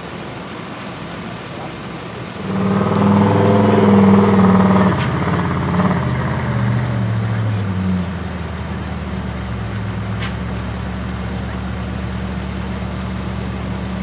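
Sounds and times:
truck engine revving: 2.2s - 14.0s
sharp click: 10.2s - 10.4s.

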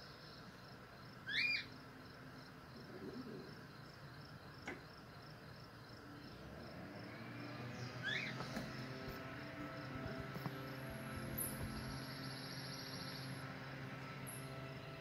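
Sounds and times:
cockatiel rising whistled call: 8.0s - 8.4s
faint high chirring: 8.0s - 15.0s.

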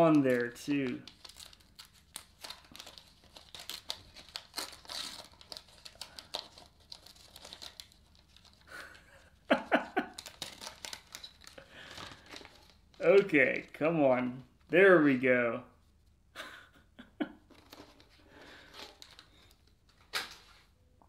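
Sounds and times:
wax paper tearing: 0.0s - 8.7s
wax paper wrapper crinkling: 0.0s - 13.8s, 17.5s - 20.6s.

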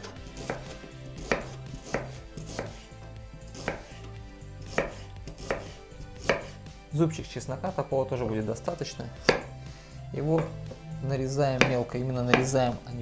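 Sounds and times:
knife knocking on cutting board: 9.2s - 9.5s, 10.4s - 10.8s, 11.6s - 12.6s.

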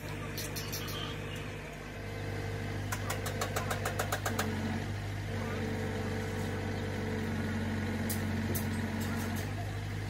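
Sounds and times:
machine hum: 0.0s - 10.0s
rapid sharp taps: 2.9s - 4.5s
sharp clicks: 2.9s - 4.5s.

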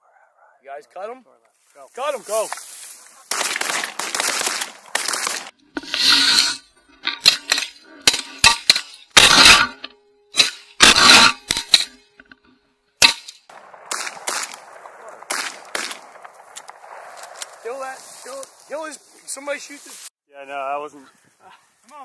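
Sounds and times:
shotgun blasts: 3.3s - 5.5s, 13.0s - 17.7s.

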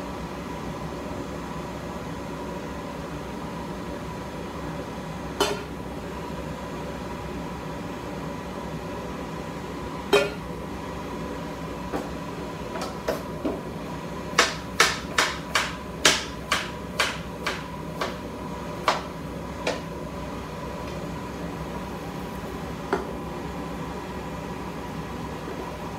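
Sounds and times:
steady background hum: 0.0s - 25.9s
knife chopping on cutting board: 14.3s - 18.2s, 18.8s - 19.8s.

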